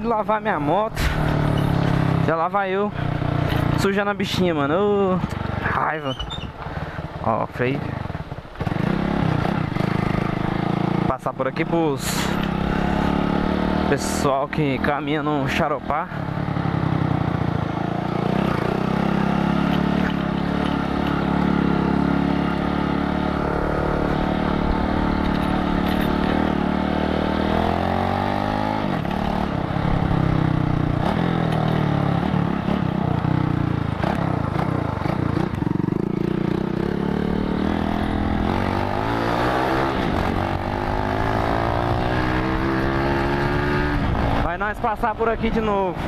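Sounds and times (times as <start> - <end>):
small motorcycle engine: 15.6 - 44.6.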